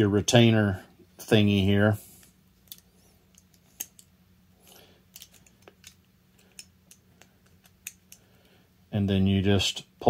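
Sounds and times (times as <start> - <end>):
small clicks of wire clip: 2.6 - 4.1.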